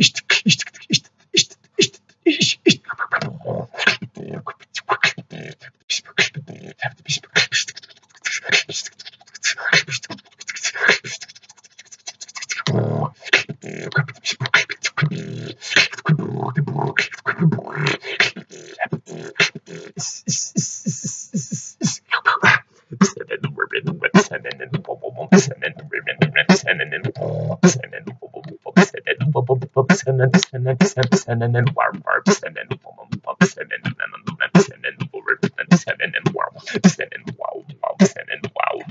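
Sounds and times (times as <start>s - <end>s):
man beatboxing: 0.0s - 38.9s.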